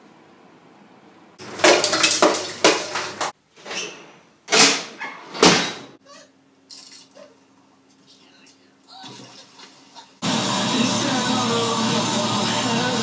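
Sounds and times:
oven racks rattling: 1.4 - 5.9.

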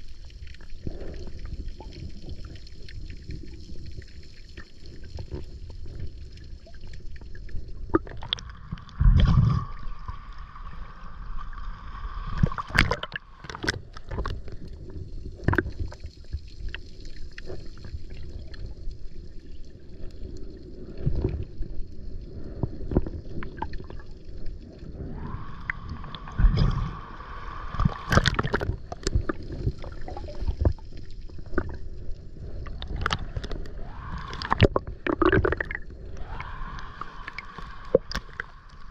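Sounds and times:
water sloshing and gurgling: 0.0 - 38.9.

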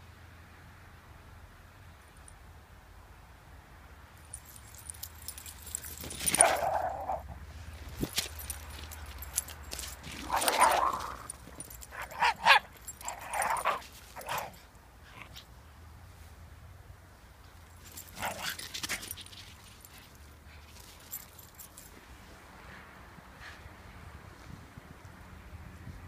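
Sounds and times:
dogs barking and yipping: 4.9 - 7.3, 8.4 - 15.4, 17.9 - 21.9.

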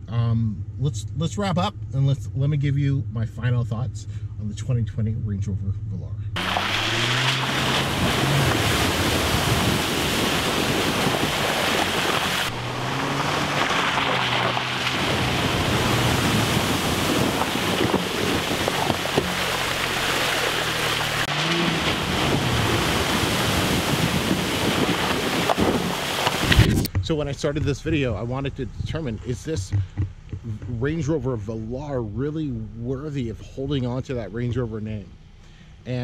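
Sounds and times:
car engine revving: 6.4 - 26.8
water spraying from tyres: 6.4 - 26.8
wind on microphone: 6.9 - 19.5, 21.5 - 30.8.

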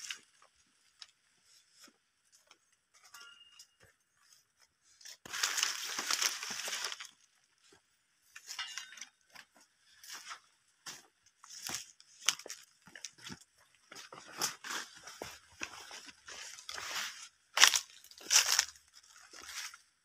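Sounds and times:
undergrowth brushing and rustling: 5.1 - 7.2, 14.0 - 19.8
footsteps crunching dry leaves: 5.2 - 7.2, 11.4 - 13.3, 14.0 - 19.8.

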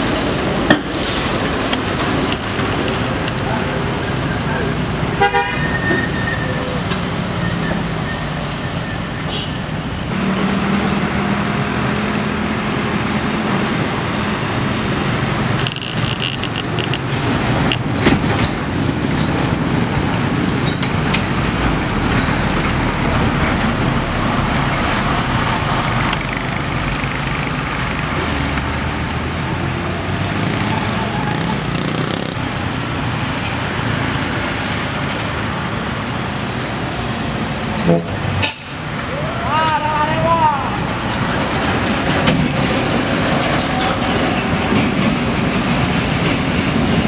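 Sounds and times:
vehicles passing: 0.0 - 47.0
dump truck clicking and rattling: 15.0 - 28.8, 40.1 - 47.0.

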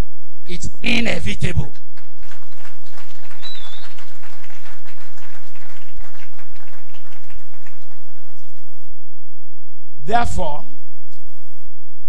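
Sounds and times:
audience applauding: 1.7 - 8.7.

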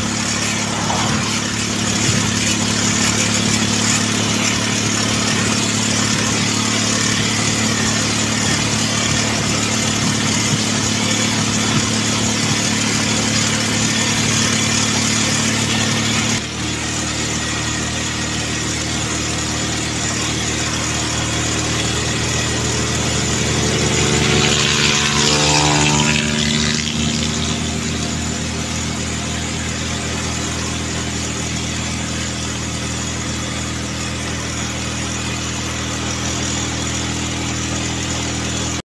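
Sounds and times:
vehicle passing by: 0.0 - 2.4, 21.9 - 28.2
motorcycle engine running: 0.0 - 38.8
wind rushing over microphone: 0.3 - 2.4.

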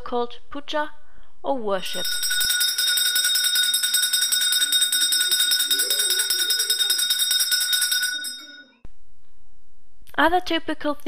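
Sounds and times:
hand bell rung rapidly: 1.8 - 8.7.

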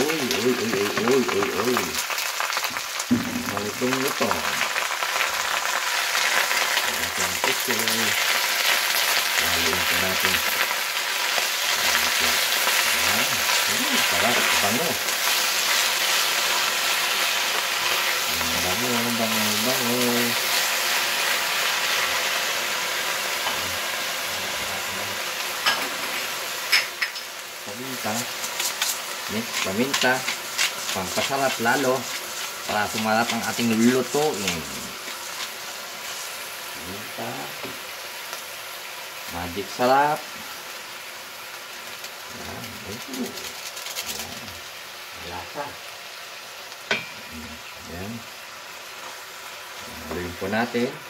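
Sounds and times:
vegetables sizzling in hot oil: 0.0 - 51.0.

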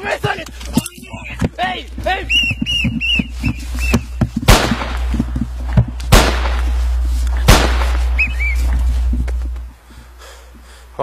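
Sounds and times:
loud gunshot-like bangs with echo: 4.5 - 5.2, 6.1 - 6.7, 7.5 - 8.2.

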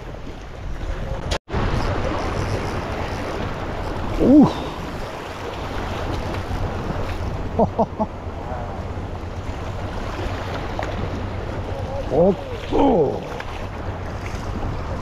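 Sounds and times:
wind buffeting microphone: 0.0 - 15.0
sea swell washing over rocks: 1.5 - 7.5
person exclaiming: 4.2 - 4.8, 12.1 - 13.4.

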